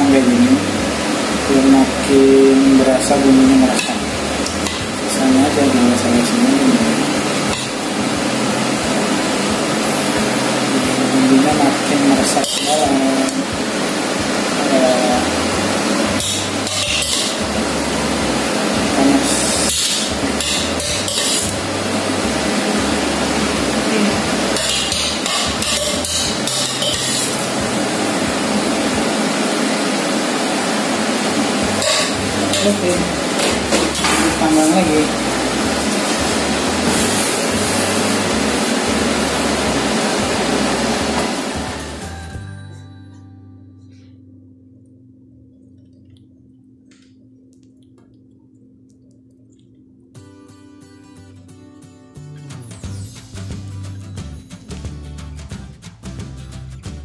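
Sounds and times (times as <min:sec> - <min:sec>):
guitar background music: 0:00.0 - 0:29.9, 0:31.0 - 0:44.2, 0:50.1 - 0:57.0
oven hissing: 0:00.0 - 0:42.1
low hum: 0:13.1 - 0:50.3.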